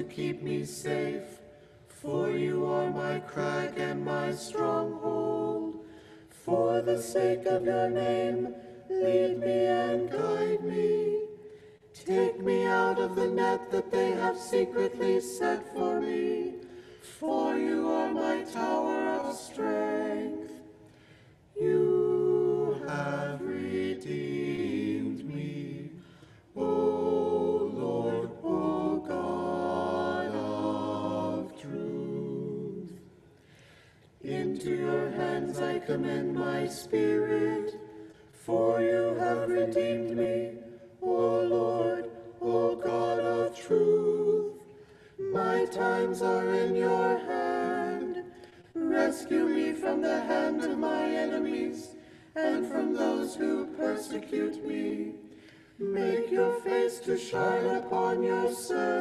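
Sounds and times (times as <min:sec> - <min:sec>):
choir chanting a psalm: 0:00.0 - 0:59.0.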